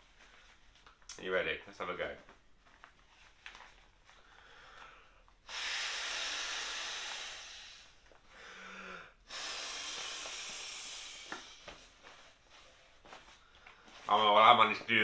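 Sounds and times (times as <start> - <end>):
quick breath in: 4.2 - 11.9
breath blown into inflatable pillow: 5.4 - 11.9.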